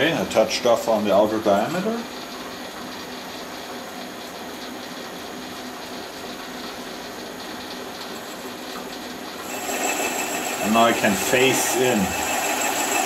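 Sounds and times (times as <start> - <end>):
metal lathe whirring: 6.8 - 13.0.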